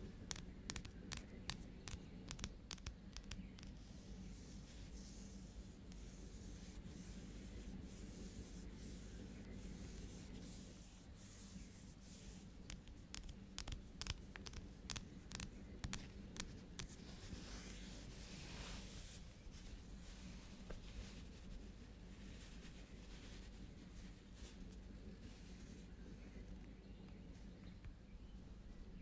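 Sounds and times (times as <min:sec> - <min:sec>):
soft scratching and rubbing: 0:00.0 - 0:26.6
faint low hiss: 0:00.0 - 0:29.0
fingernail taps on cardboard: 0:00.3 - 0:03.7.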